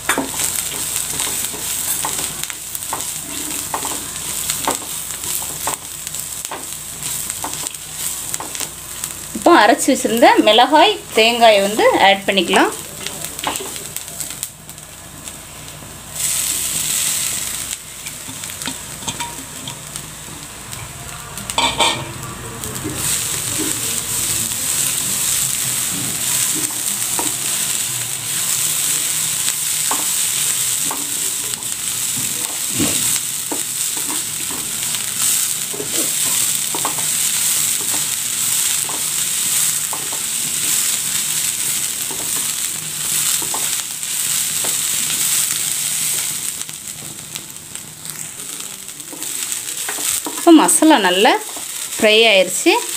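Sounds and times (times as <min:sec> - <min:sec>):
paste sizzling in oil: 0:00.0 - 0:52.9
spatula tapping pan: 0:00.1 - 0:06.7, 0:29.8 - 0:30.2, 0:33.5 - 0:34.7, 0:35.7 - 0:37.2, 0:39.8 - 0:40.3.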